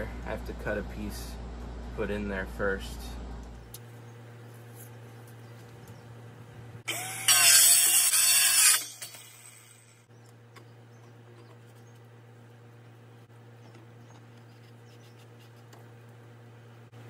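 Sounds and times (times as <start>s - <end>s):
power saw cutting pipe: 6.9s - 10.1s.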